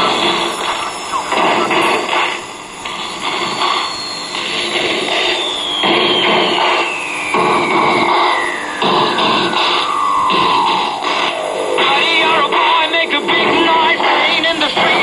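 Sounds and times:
radio static hiss: 0:00.0 - 0:15.0
whistle sliding down in pitch: 0:03.6 - 0:08.8.

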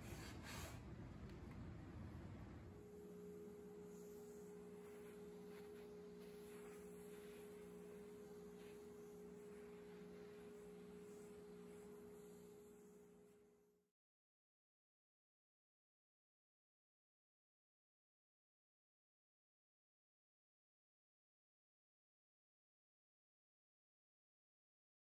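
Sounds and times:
shop vacuum humming: 0:02.7 - 0:13.8.

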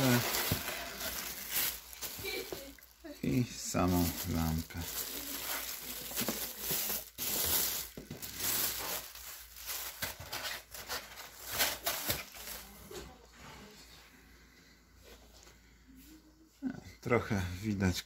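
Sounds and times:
plastic wrapping crinkling: 0:00.0 - 0:12.8.

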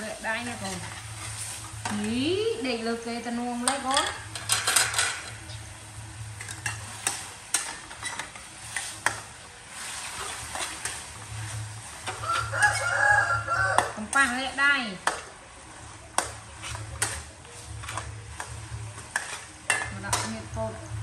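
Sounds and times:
light sizzle: 0:00.0 - 0:21.0
metal utensils scraping a wok: 0:00.0 - 0:21.0
rooster crowing: 0:12.1 - 0:14.0.

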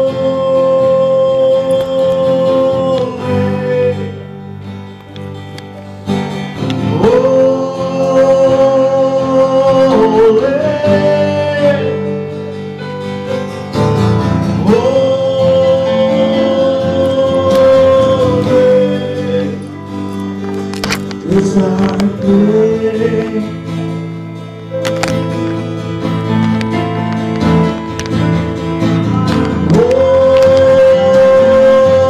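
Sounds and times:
person singing long notes: 0:00.0 - 0:04.4, 0:06.6 - 0:12.5, 0:14.6 - 0:23.8, 0:29.1 - 0:32.0
instrumental accompaniment: 0:00.0 - 0:32.0.

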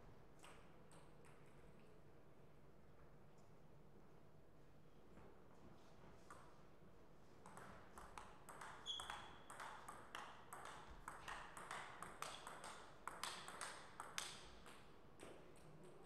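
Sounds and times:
ping pong ball clicking: 0:07.4 - 0:15.7
shoe squeak: 0:08.8 - 0:09.4.

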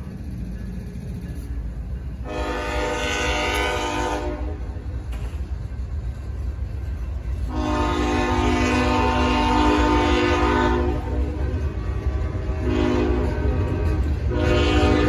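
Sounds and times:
freight train rumbling: 0:00.0 - 0:15.0
train horn blasts: 0:02.2 - 0:04.8, 0:07.4 - 0:15.0.

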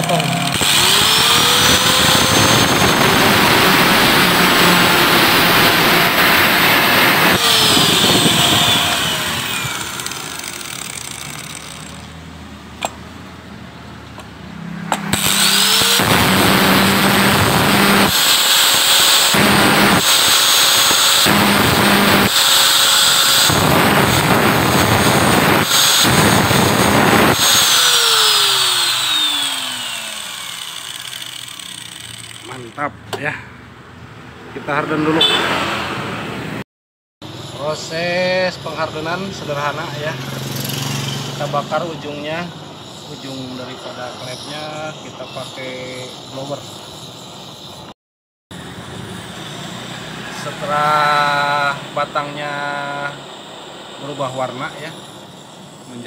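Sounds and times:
angle grinder and drill whining: 0:00.0 - 0:12.2, 0:14.9 - 0:32.9, 0:37.2 - 0:47.9, 0:48.6 - 0:53.3, 0:54.0 - 0:56.0
grinder disc cutting metal: 0:00.0 - 0:12.2, 0:14.8 - 0:32.9.

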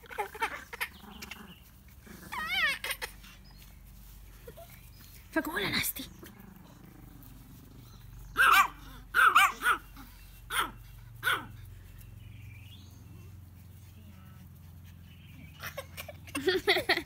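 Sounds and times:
small dog barking: 0:08.4 - 0:09.9, 0:10.5 - 0:11.6.

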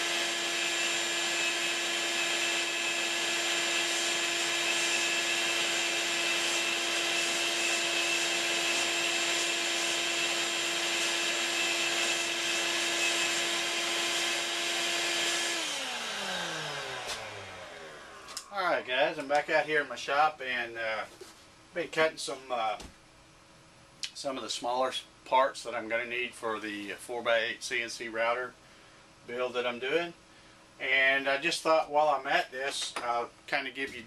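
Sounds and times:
router motor whining: 0:00.0 - 0:18.5.

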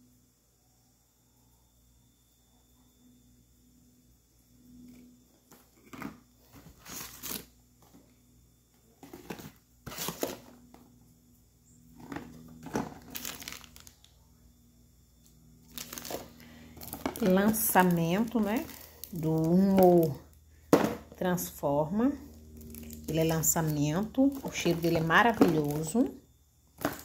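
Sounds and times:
plastic packaging crinkling: 0:05.9 - 0:07.5, 0:09.0 - 0:10.6, 0:12.0 - 0:14.2, 0:15.6 - 0:20.4, 0:22.5 - 0:26.2, 0:26.8 - 0:27.0.

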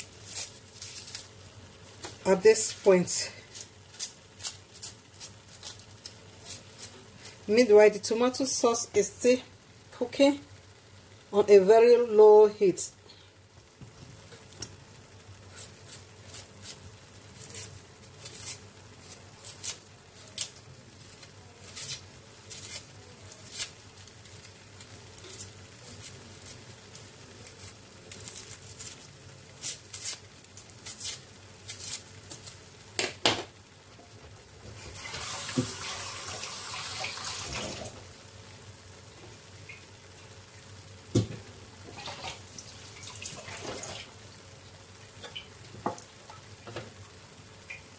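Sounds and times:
steady hiss: 0:00.0 - 0:47.9
sharp pops and crackles: 0:13.7 - 0:33.6
sauce spluttering in a pan: 0:34.7 - 0:47.9.

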